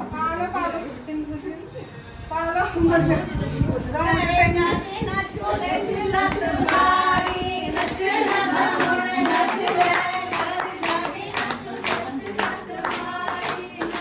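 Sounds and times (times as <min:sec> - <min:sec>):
voices singing: 0:02.9 - 0:14.0
rhythmic hand clapping: 0:06.1 - 0:14.0.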